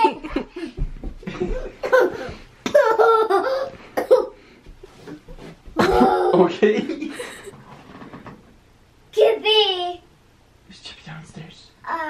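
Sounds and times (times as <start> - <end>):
person laughing and giggling: 0.0 - 4.4, 5.8 - 7.5.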